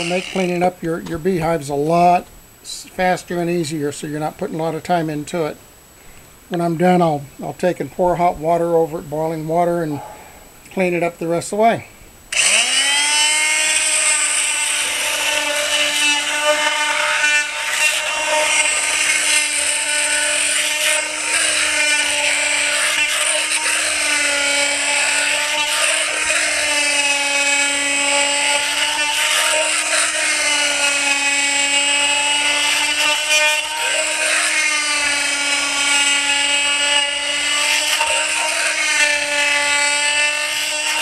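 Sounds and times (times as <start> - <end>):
oscillating trimmer buzzing whine: 0.0 - 1.9, 12.3 - 41.0.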